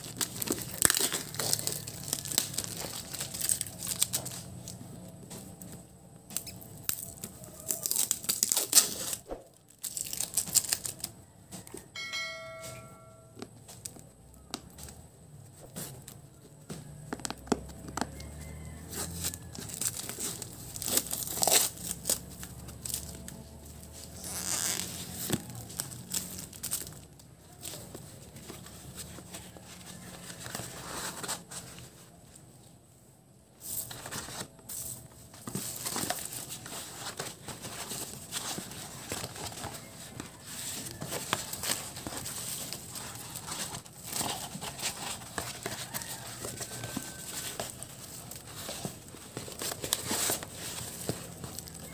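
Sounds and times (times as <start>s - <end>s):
thick paper tearing and crumpling: 0.0s - 4.8s, 6.3s - 11.2s, 18.4s - 31.9s, 33.6s - 51.9s.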